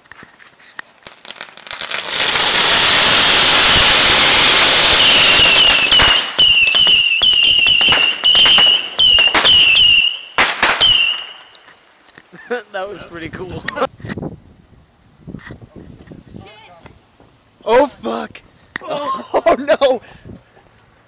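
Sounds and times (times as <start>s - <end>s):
firework crackling: 0.7s - 11.8s
firework falling whistle: 2.3s - 11.6s
firework pops: 4.9s - 11.8s.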